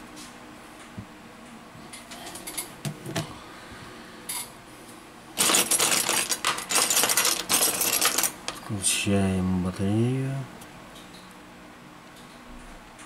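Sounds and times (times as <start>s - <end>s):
loud clatter of rapid clicks: 5.4s - 8.4s.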